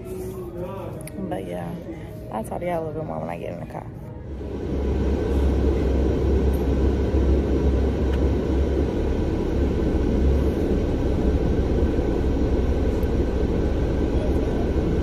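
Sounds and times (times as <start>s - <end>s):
car engine rumble inside car: 4.2s - 15.0s.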